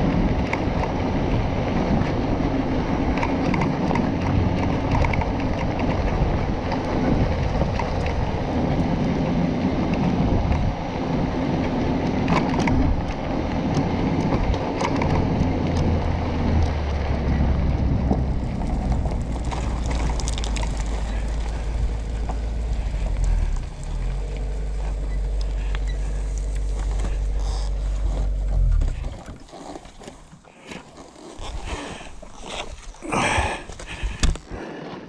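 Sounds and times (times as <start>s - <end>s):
low engine hum: 0.0s - 34.7s
tyres crunching on gravel: 11.6s - 35.0s
ticks of gravel: 18.0s - 35.0s.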